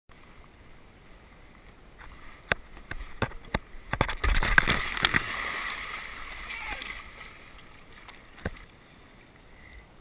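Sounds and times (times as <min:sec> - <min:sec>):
splash and rush of water: 0:01.9 - 0:08.9
plastic kayak knocking and scraping: 0:02.0 - 0:05.4.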